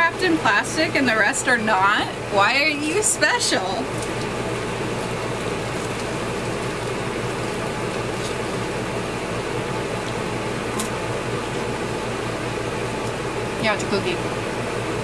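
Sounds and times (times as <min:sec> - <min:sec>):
fan-like hum and hiss: 0:00.0 - 0:15.0
crisp wafer crunching: 0:03.8 - 0:11.1.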